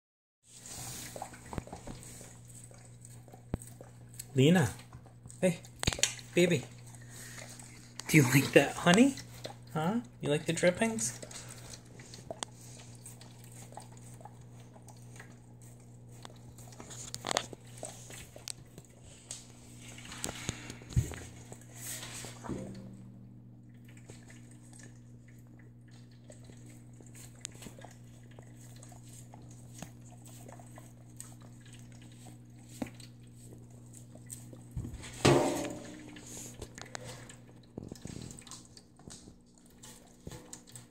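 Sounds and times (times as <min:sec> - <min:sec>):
dog licking: 0:00.6 - 0:22.4, 0:23.7 - 0:35.0, 0:35.8 - 0:40.9
steady low hum: 0:00.6 - 0:40.9.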